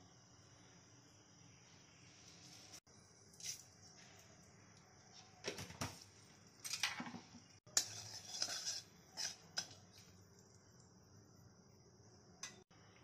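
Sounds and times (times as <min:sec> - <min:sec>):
metal spatula scraping a metal pan: 0:07.7 - 0:10.0.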